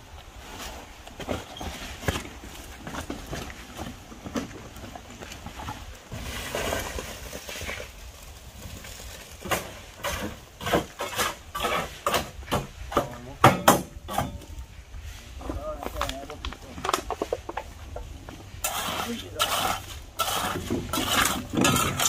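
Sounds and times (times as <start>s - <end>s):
wheelbarrow rattling over stony ground: 0.5s - 14.7s, 15.4s - 22.0s
loud sharp knocks: 12.1s - 13.9s.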